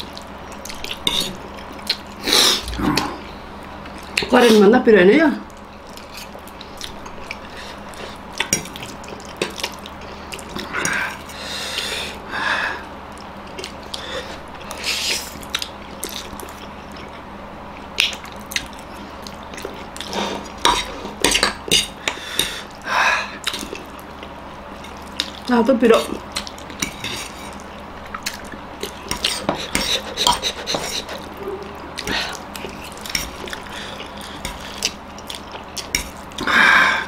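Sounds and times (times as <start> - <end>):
forks scraping on plates: 29.1 - 32.1.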